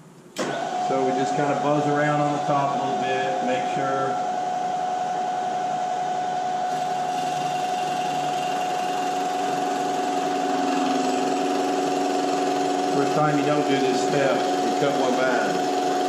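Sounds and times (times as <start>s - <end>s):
milling machine spindle whine: 0.4s - 16.0s.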